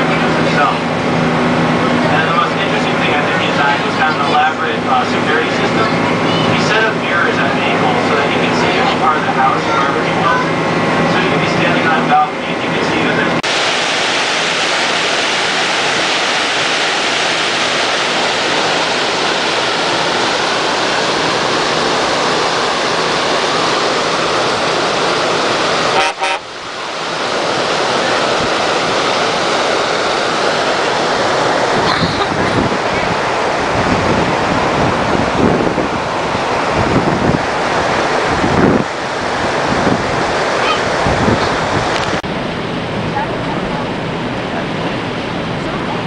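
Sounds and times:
water rushing in boat wake: 0:00.0 - 0:46.0
wind buffeting microphone: 0:26.5 - 0:46.0.

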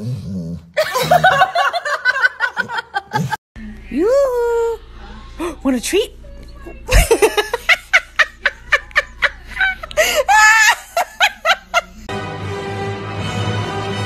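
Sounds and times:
person laughing: 0:00.8 - 0:03.4, 0:06.9 - 0:12.1
music: 0:12.1 - 0:14.0.

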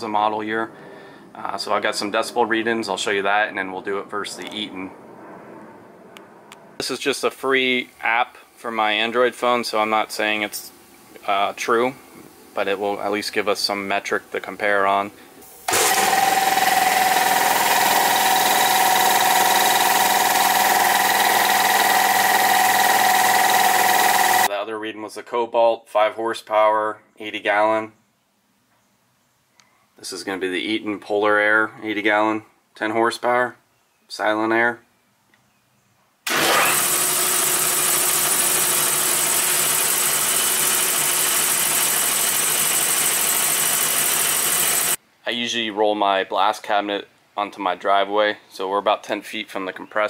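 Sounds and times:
air compressor running: 0:15.4 - 0:24.5, 0:36.3 - 0:45.0.

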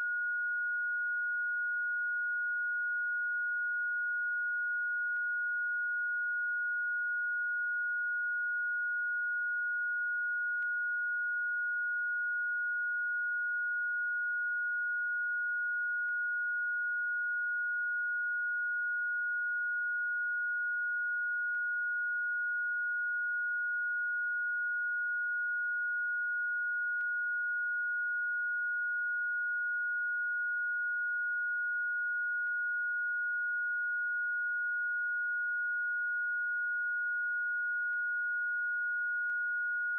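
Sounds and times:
steady high-pitched sine tone: 0:00.0 - 0:39.9.

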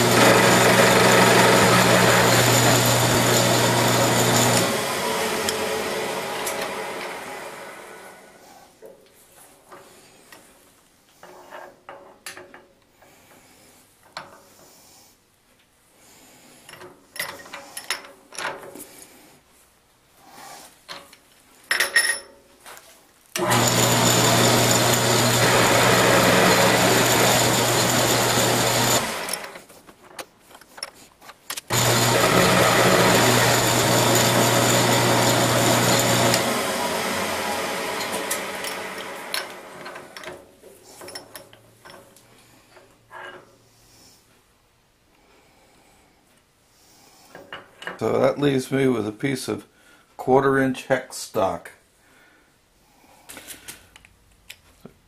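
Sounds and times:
milling machine cutting metal: 0:00.0 - 0:08.2, 0:23.4 - 0:29.6, 0:31.7 - 0:40.2.

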